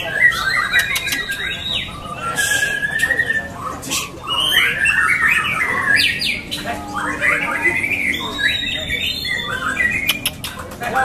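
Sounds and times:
bird singing whistles and trills: 0.0s - 10.6s
sharp clicks: 10.0s - 10.8s.

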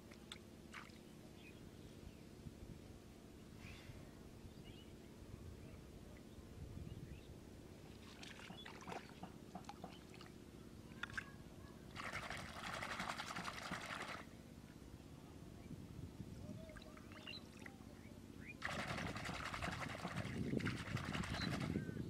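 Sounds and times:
muddy water splashing: 7.9s - 10.4s, 11.9s - 14.3s, 18.6s - 21.8s.

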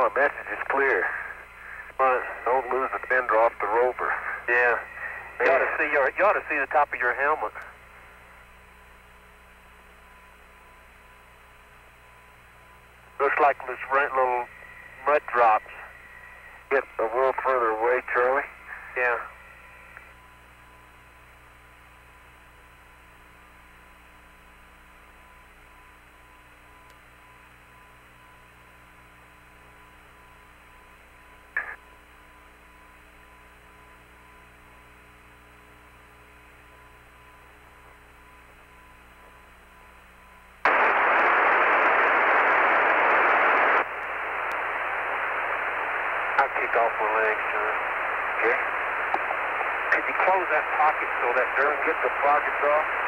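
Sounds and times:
radio hiss: 0.0s - 8.5s, 12.8s - 20.2s, 31.5s - 31.8s, 40.6s - 53.0s
loud static: 0.0s - 53.0s.

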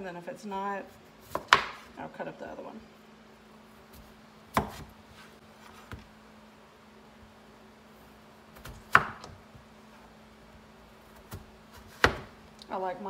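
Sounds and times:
faint steady hum: 0.0s - 13.0s
knife cutting potatoes: 4.0s - 5.0s, 11.0s - 12.4s.

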